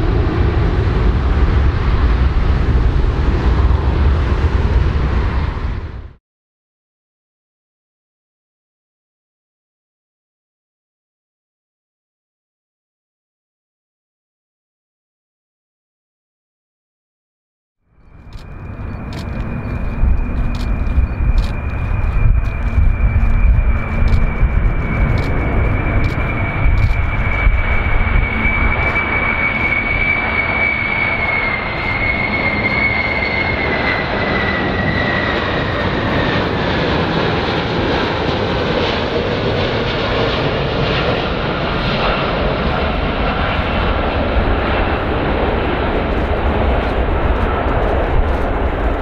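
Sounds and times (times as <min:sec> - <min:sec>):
jet engines roaring and whining: 0:00.0 - 0:06.2, 0:18.0 - 0:49.0.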